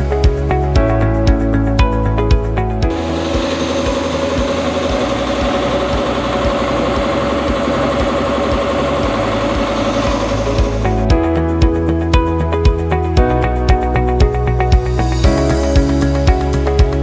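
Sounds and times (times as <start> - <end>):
air compressor running: 2.8 - 11.2.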